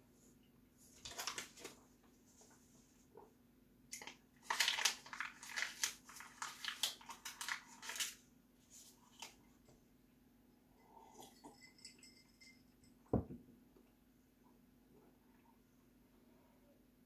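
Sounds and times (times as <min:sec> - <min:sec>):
paper crinkling in mouth: 0:01.0 - 0:01.8, 0:04.0 - 0:09.4.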